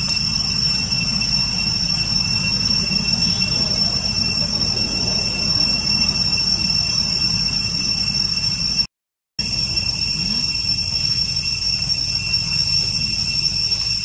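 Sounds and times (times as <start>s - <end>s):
low restless rumble: 0.0s - 13.9s
high-pitched insect drone: 0.0s - 14.0s.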